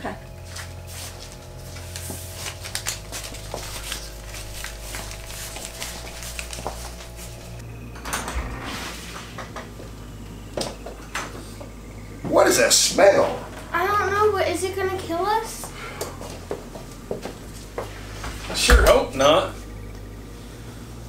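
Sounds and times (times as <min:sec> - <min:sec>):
steady low hum: 0:00.0 - 0:21.0
door opening: 0:07.6 - 0:11.3.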